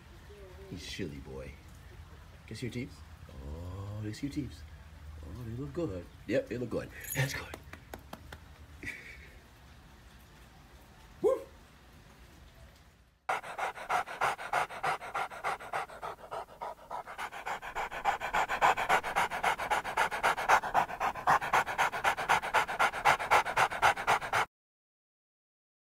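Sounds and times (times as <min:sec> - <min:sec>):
dog panting quickly: 0:13.3 - 0:24.5.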